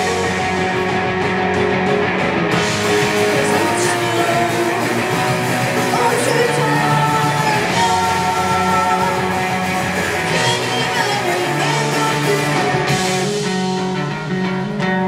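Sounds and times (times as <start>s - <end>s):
electric guitars: 0.0s - 15.0s
punk rock band playing: 0.0s - 15.0s
person singing: 3.1s - 13.5s.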